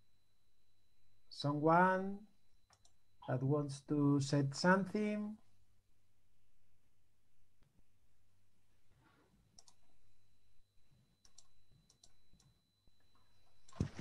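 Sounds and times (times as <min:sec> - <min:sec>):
faint high whine: 0:00.0 - 0:14.0
low steady hum: 0:00.0 - 0:14.0
faint clicks: 0:02.6 - 0:03.0, 0:09.6 - 0:09.9.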